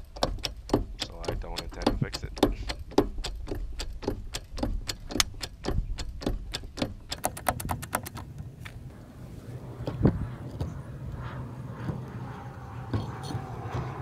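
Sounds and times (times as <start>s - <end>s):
hydraulic jack clicking: 0.0s - 8.5s.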